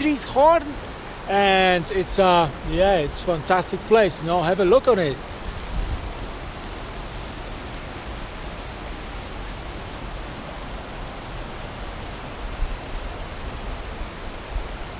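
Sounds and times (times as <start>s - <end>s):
meltwater rushing: 0.0s - 14.9s.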